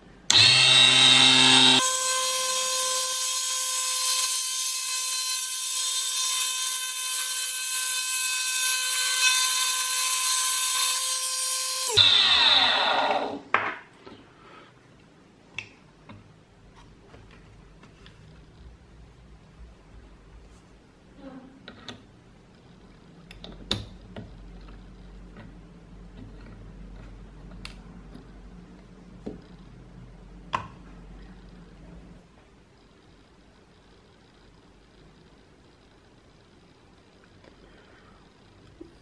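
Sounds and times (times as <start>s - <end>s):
lathe motor whining: 0.3s - 13.4s.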